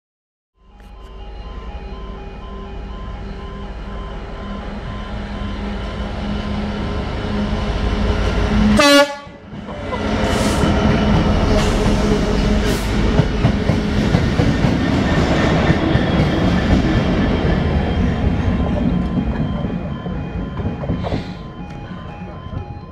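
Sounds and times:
diesel locomotives passing: 0:00.6 - 0:22.9
train horn blast: 0:08.6 - 0:10.7.

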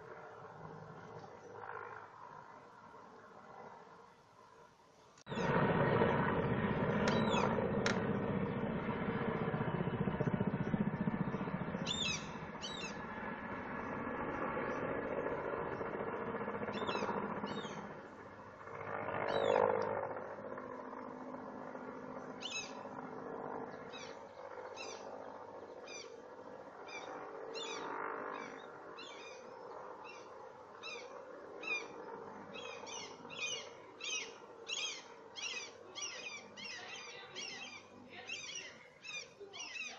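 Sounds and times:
distant helicopter drone: 0:00.0 - 0:39.9
small birds chirping: 0:07.1 - 0:07.5, 0:11.8 - 0:13.0, 0:16.7 - 0:17.9, 0:22.2 - 0:22.9, 0:26.9 - 0:39.9.

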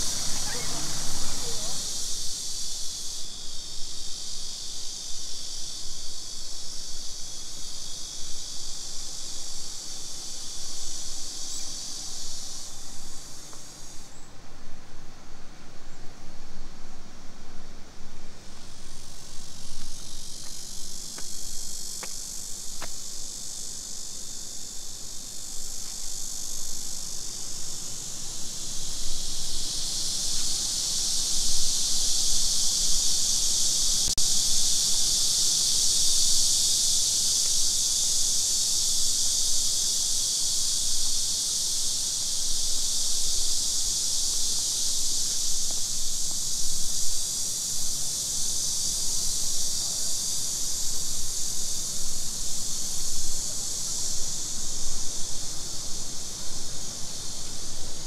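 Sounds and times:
insect chorus buzzing: 0:00.0 - 0:58.0.

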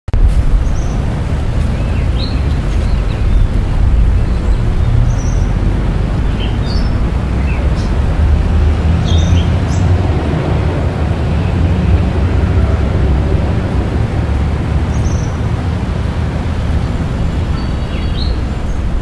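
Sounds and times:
traffic rumble: 0:00.1 - 0:19.0
bird chirps: 0:17.3 - 0:19.0.

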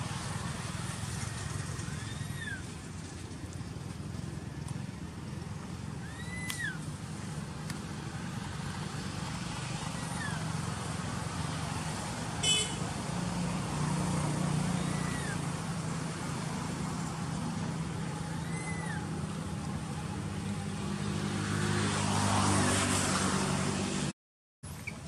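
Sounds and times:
distant road traffic rumble: 0:00.0 - 0:25.0
bird whistling: 0:06.0 - 0:06.8, 0:14.8 - 0:15.4, 0:18.4 - 0:19.1.

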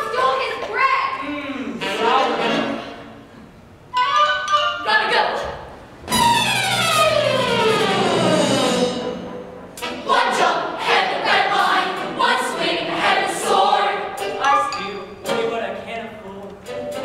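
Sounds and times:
musical accompaniment: 0:01.8 - 0:04.9, 0:05.9 - 0:17.0
group singing in chorus: 0:09.8 - 0:15.5.

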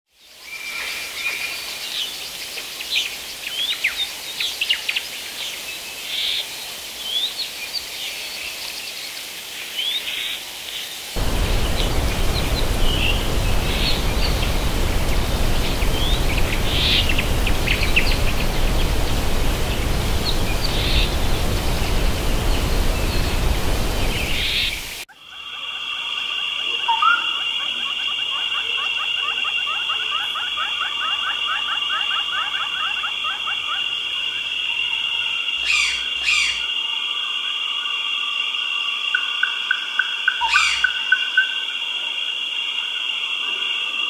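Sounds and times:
birds chirping and whistling: 0:11.2 - 0:25.0
waterfall rushing: 0:11.2 - 0:25.1.

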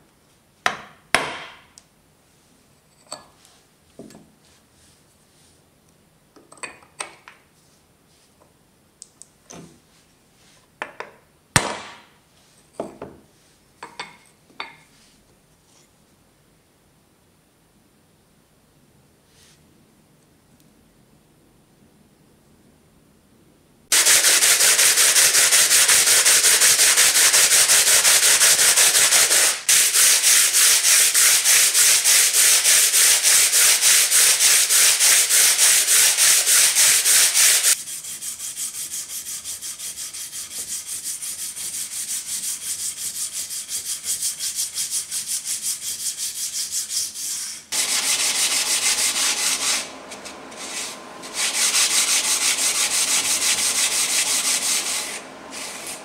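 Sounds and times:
stone rasping on sandpaper: 0:23.9 - 0:56.0
stone strokes on wet whetstone: 0:23.9 - 0:56.0.

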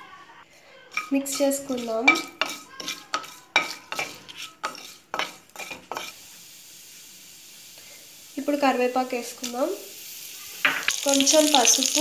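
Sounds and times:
wooden spatula scraping a pan: 0:00.9 - 0:06.2
oil sizzling: 0:00.9 - 0:12.0.

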